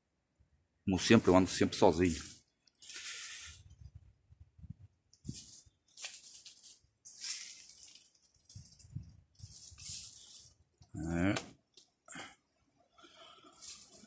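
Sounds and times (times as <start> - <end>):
footsteps crunching on dry leaves: 5.3 - 8.6.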